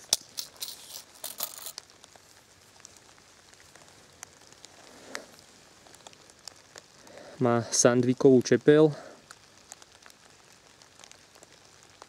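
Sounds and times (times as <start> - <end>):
leather rustling and scraping: 0.0 - 1.8.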